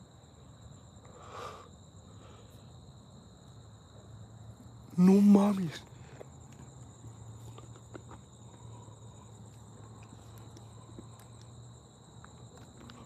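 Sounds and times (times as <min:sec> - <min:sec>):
night insects chorus: 0:00.0 - 0:13.0
faint footsteps: 0:05.8 - 0:13.0.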